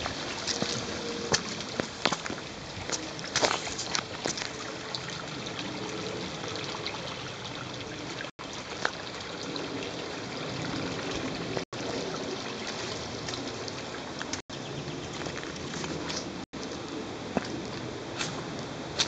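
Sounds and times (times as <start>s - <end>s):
creek trickling over stones: 0.0s - 19.0s.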